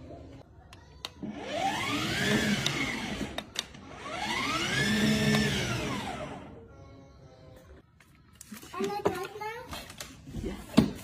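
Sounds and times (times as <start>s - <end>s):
toy car motor revving: 1.3s - 6.5s.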